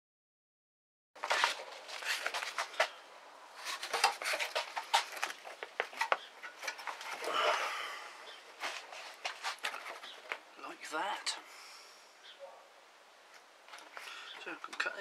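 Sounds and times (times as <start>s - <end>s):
cardboard scraping on steel: 1.2s - 7.3s.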